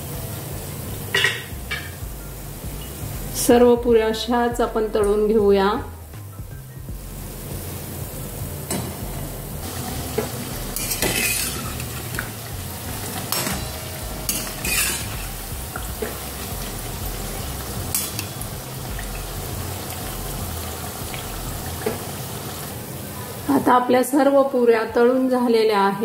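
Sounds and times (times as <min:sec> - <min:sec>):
deep-frying sizzle in oil: 0:04.5 - 0:23.8
metal spoon scraping a pan: 0:10.8 - 0:12.2, 0:13.1 - 0:15.4.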